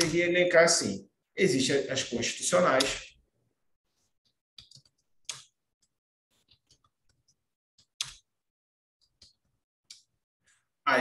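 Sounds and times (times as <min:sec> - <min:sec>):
keyboard typing clicks: 0:04.6 - 0:05.5.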